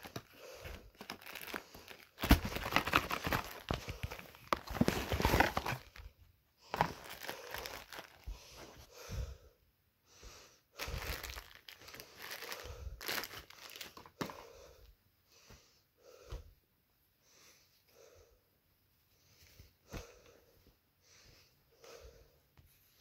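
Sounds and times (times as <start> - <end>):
packaging crinkling and rustling: 0.0 - 6.1, 6.7 - 8.3, 10.8 - 14.4.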